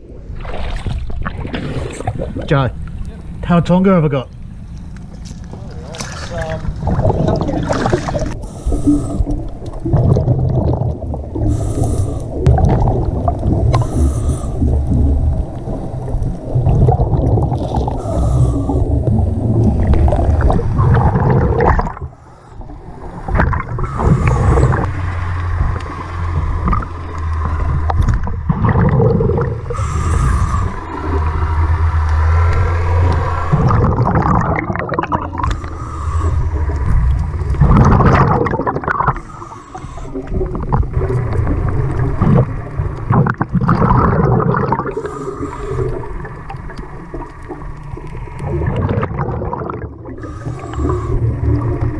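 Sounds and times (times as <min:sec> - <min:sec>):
exhaled bubbles rumbling: 0:00.0 - 0:51.9
regulator hiss on inhalation: 0:08.4 - 0:09.4, 0:11.4 - 0:12.4, 0:13.8 - 0:14.7, 0:18.0 - 0:18.9, 0:29.7 - 0:30.9, 0:39.1 - 0:40.3, 0:50.2 - 0:51.2.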